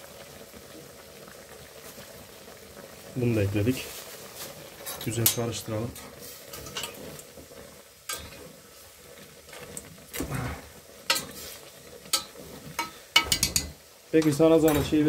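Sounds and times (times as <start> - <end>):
meat sizzling: 0.0 - 15.0
spoon knocking: 12.2 - 15.0.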